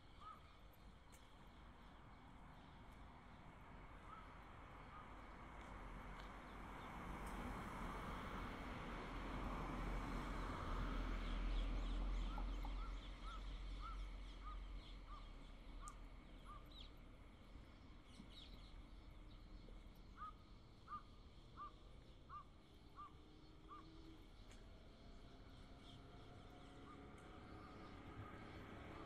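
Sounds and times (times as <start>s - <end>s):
car passing: 4.8s - 14.7s, 23.1s - 29.0s.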